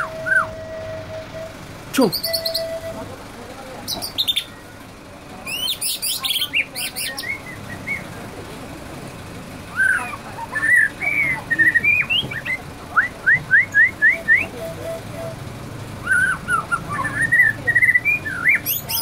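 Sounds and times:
bird singing trills and whistles: 0:00.0 - 0:03.1, 0:03.9 - 0:04.7, 0:05.4 - 0:08.2, 0:09.7 - 0:15.4, 0:16.0 - 0:19.0.

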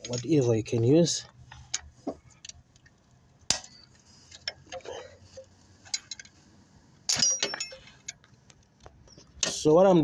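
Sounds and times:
metal clattering: 0:07.1 - 0:08.2.

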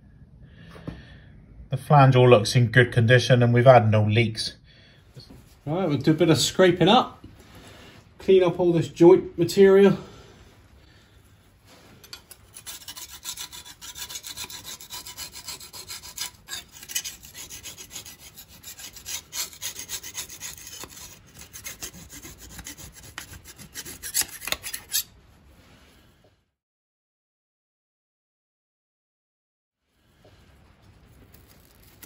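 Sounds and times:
scraper scraping metal flange: 0:12.0 - 0:25.1.

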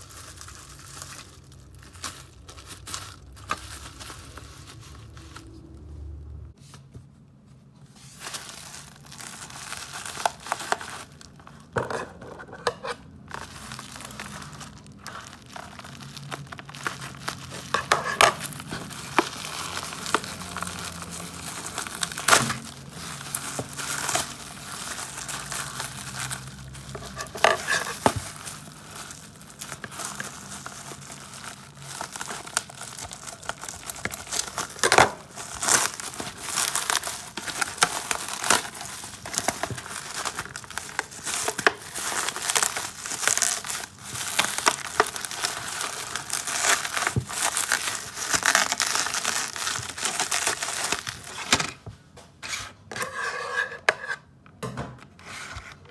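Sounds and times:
packaging crinkling and rustling: 0:00.0 - 0:06.2, 0:07.0 - 0:53.2.

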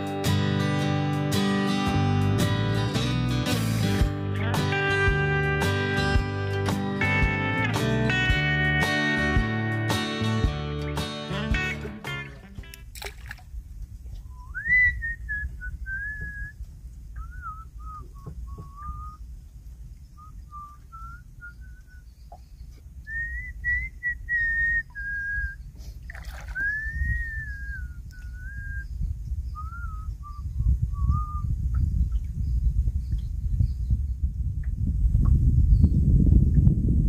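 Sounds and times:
person whistling a tune: 0:14.3 - 0:16.6, 0:17.2 - 0:19.2, 0:20.2 - 0:22.0, 0:23.1 - 0:25.6, 0:26.5 - 0:28.9, 0:29.6 - 0:31.5
low rumble: 0:26.7 - 0:37.0.

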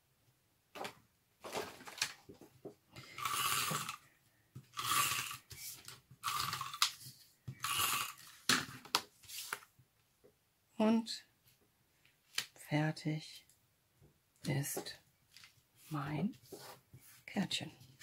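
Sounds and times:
paper clicks and rustles: 0:00.8 - 0:02.5
tape runner pulled along paper: 0:03.1 - 0:04.0, 0:04.7 - 0:08.5.

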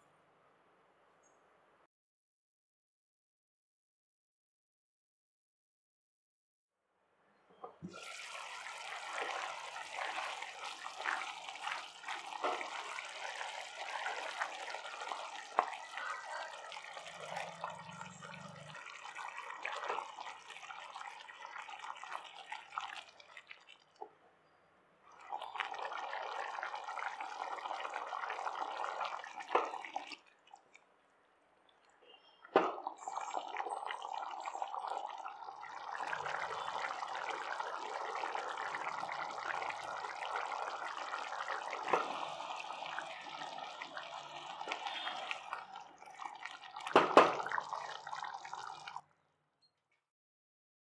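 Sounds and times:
curry bubbling and sizzling: 0:07.8 - 0:24.2, 0:25.1 - 0:30.8, 0:31.7 - 0:49.0.

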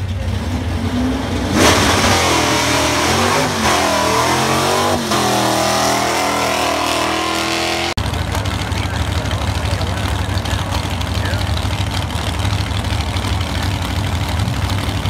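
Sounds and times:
drag car engine revving: 0:00.0 - 0:15.0
low engine rumble: 0:07.9 - 0:15.0.

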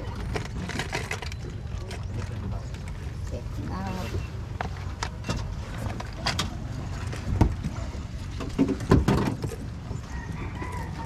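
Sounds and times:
speedboat engine rumble: 0:00.0 - 0:11.0
sharp knocks and thumps: 0:08.4 - 0:09.7.

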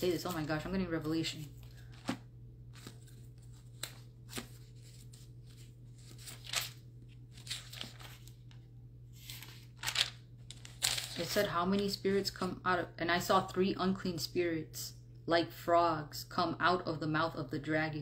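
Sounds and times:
paper pages rustling: 0:00.0 - 0:11.5.

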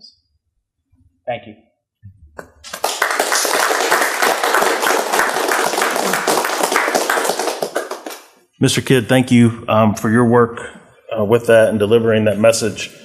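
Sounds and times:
people applauding: 0:02.4 - 0:08.4.

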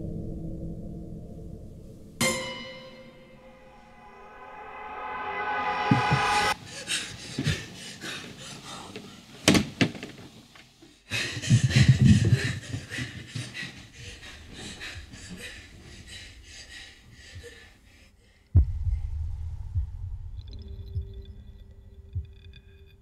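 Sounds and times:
low boom: 0:03.5 - 0:06.6, 0:18.6 - 0:22.3
hard frightened breathing: 0:06.6 - 0:09.4, 0:10.8 - 0:19.1
pulsing heartbeat-like rumble: 0:18.6 - 0:22.8.

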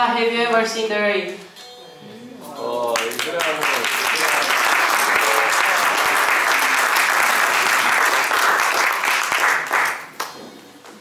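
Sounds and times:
audience applause: 0:03.0 - 0:10.3.

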